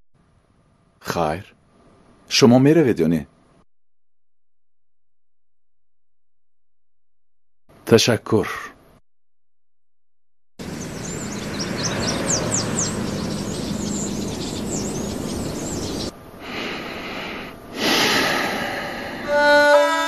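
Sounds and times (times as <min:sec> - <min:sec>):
small birds chirping: 0:10.6 - 0:17.3
steady background hiss: 0:10.6 - 0:19.8
music with long held notes: 0:19.2 - 0:20.0.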